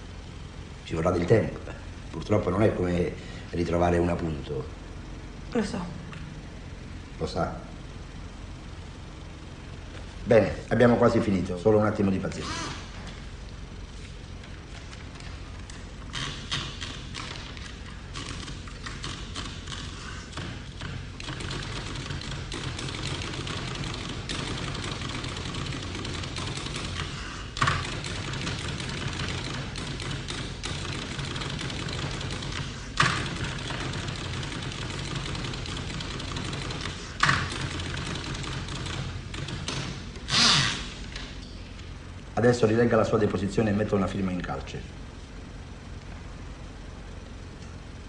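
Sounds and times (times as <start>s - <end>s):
low background hum: 0.0s - 48.0s
keyboard typing clacks: 16.1s - 40.0s.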